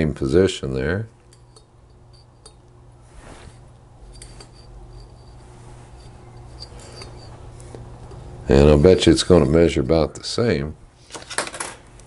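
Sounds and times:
steady low hum: 0.0s - 11.2s
soft metal scrape: 1.3s - 10.0s.

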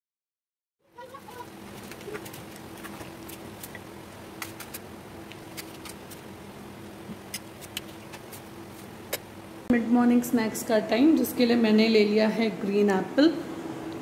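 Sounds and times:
knife cutting apple: 4.4s - 6.2s.

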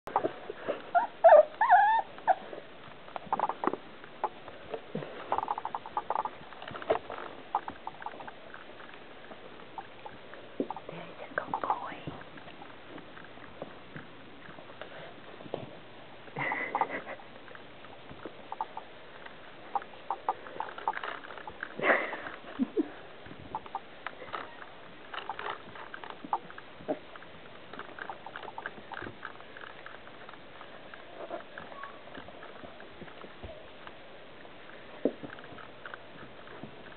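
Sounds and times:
puppies yipping and whining: 0.1s - 2.6s.

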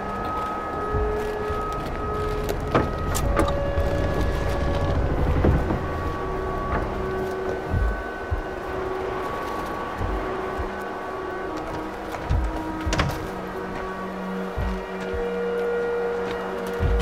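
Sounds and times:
slow music of long held notes: 0.0s - 17.0s
low rumble: 0.6s - 10.8s.

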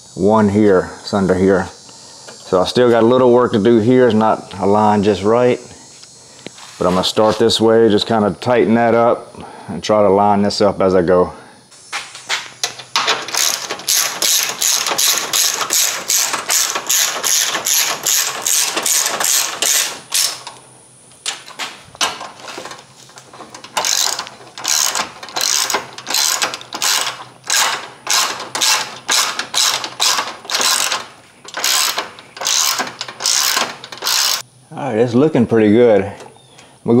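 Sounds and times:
ratchet wrench clicking: 12.6s - 20.6s, 23.5s - 34.4s.

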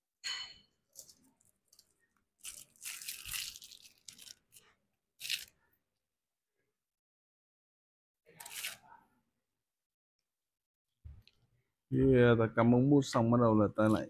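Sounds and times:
sharp plastic crackle: 0.9s - 5.5s
plastic wrapping rustling and tearing: 0.9s - 5.6s, 8.3s - 8.8s.

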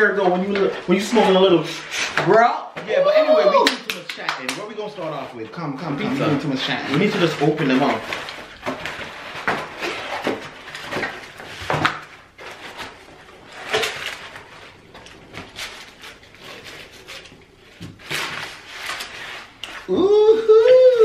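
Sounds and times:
cardboard boxes opening and scraping: 6.0s - 14.7s.

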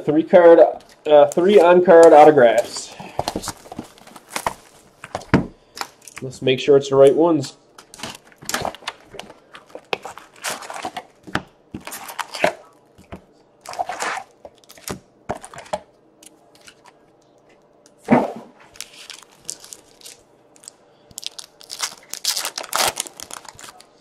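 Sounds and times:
card wrappers tearing and crinkling: 0.9s - 6.3s, 7.8s - 11.2s, 11.8s - 12.8s, 13.6s - 15.7s, 18.7s - 24.0s.

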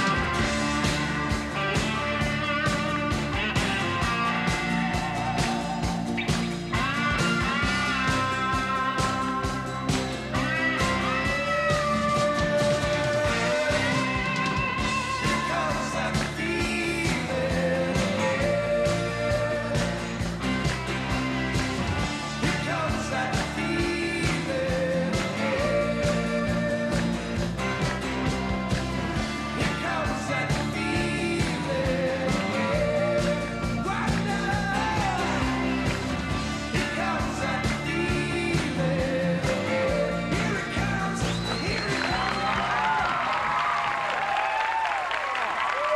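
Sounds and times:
bass guitar: 0.0s - 45.9s
drums: 0.0s - 45.9s
electric guitar: 0.0s - 45.9s
keyboards: 0.0s - 45.9s
man singing: 11.1s - 20.0s, 22.2s - 27.2s, 29.5s - 36.0s, 36.6s - 42.5s.

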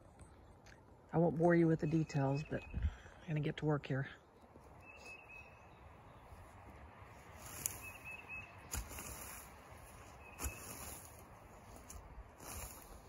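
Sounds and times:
high bird chirps: 4.8s - 6.4s, 7.4s - 11.1s.

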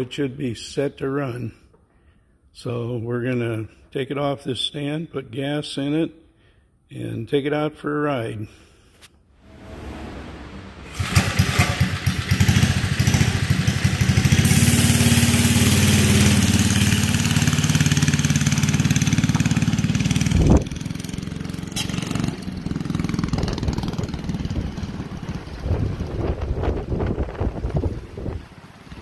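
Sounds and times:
scooter engine revving: 9.4s - 27.1s.

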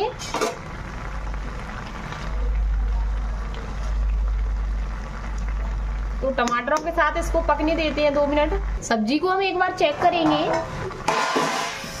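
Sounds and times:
low steady rumble: 0.7s - 9.8s
spatula scraping metal pan: 11.1s - 12.0s.

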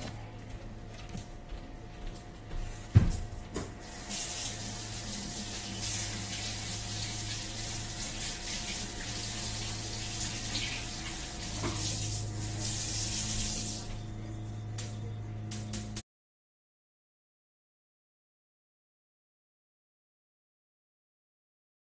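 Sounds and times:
tap water running: 3.0s - 16.0s.

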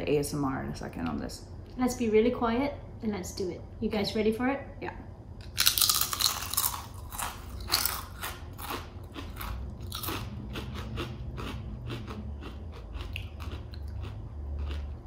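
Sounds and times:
crispy chips crunching: 5.4s - 15.0s
crunchy chewing: 5.4s - 15.0s.

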